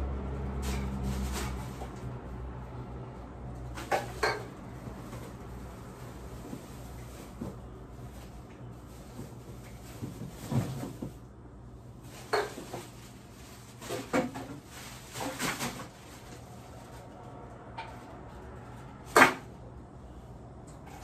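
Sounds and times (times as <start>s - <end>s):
knocks and clatters of objects: 3.6s - 5.6s, 6.3s - 11.3s, 12.0s - 17.0s.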